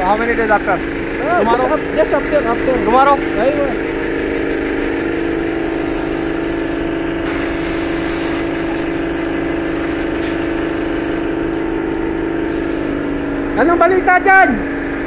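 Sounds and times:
machinery hum: 0.0 - 15.0
hiss: 4.8 - 11.3, 12.4 - 13.0.

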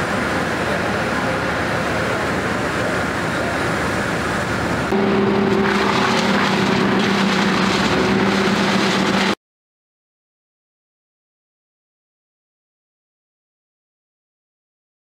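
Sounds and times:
outdoor noise: 0.0 - 9.4
wood chipper engine hum: 0.0 - 9.4
chipper grinding branches: 4.8 - 9.4.

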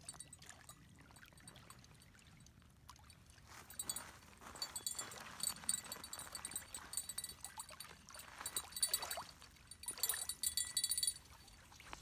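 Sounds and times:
small bell jingling: 0.0 - 1.9, 3.5 - 11.7.

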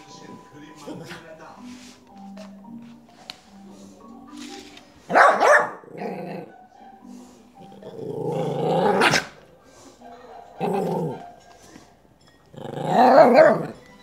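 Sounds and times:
small dog barking: 5.1 - 6.3, 13.1 - 13.8
dog growling: 5.8 - 6.5, 7.6 - 9.4, 10.6 - 11.4, 12.5 - 13.8.

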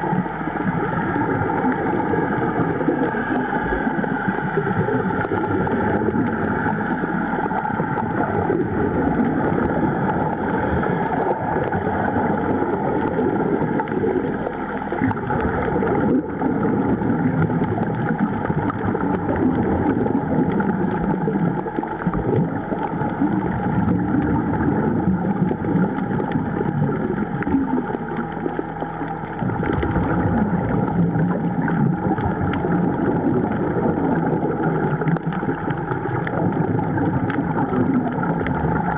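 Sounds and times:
muffled underwater rushing: 0.0 - 38.9.

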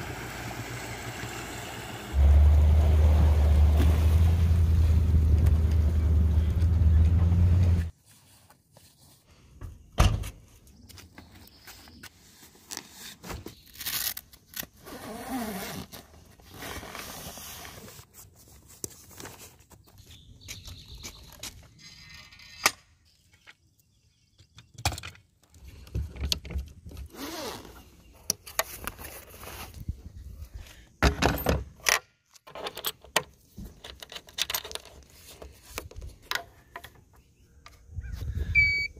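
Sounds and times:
fabric and zipper sliding: 14.8 - 18.0, 27.1 - 27.8.

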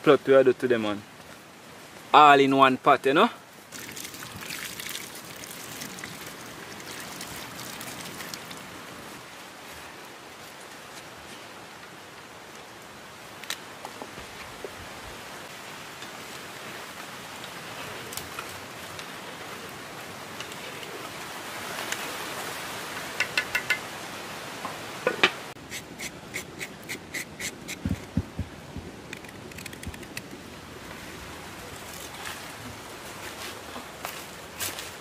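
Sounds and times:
light ticks of utensils: 23.1 - 23.8.

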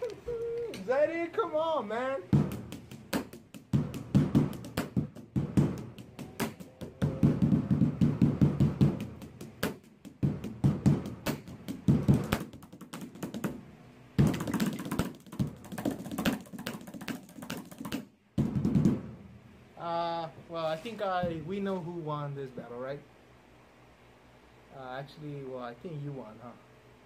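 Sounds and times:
pens drumming on a table: 2.3 - 13.6, 14.2 - 19.1.

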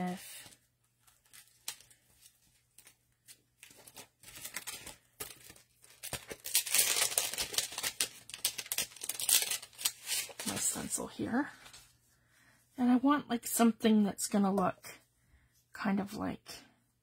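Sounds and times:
stencil crinkling: 0.1 - 11.9.

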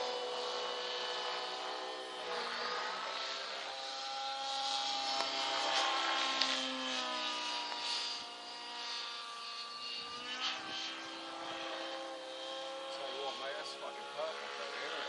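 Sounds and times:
rc helicopter rotor whine: 0.0 - 15.0.

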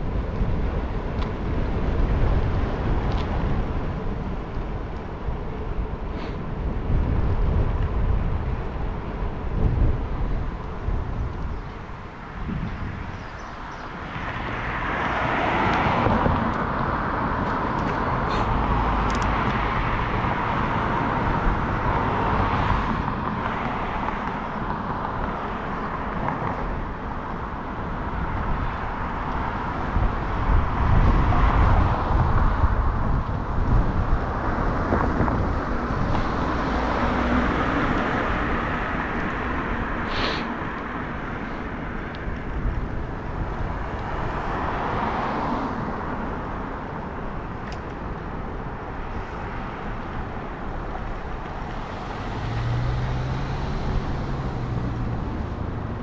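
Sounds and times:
road traffic: 0.0 - 56.0
wind on microphone: 0.0 - 56.0
bicycle tyre noise: 32.6 - 43.0.

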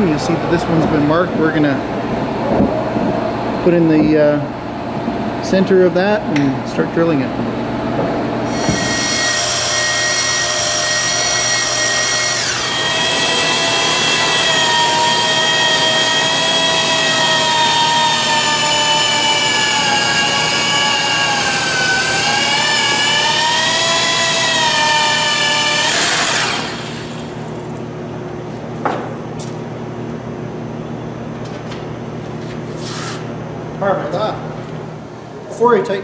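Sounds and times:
electric drill boring into steel: 8.5 - 27.7.

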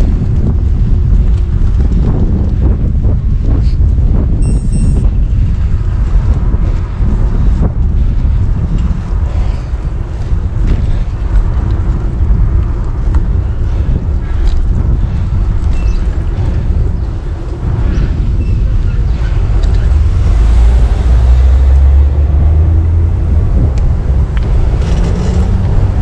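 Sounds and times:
vehicle noise: 0.0 - 26.0
wind buffeting microphone: 0.0 - 26.0
short high beep: 4.4 - 5.1.

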